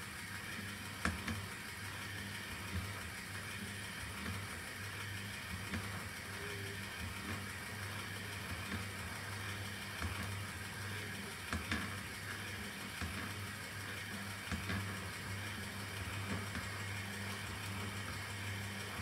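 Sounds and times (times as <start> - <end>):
motor humming: 0.0 - 19.0
light clicks and ticks: 5.4 - 19.0.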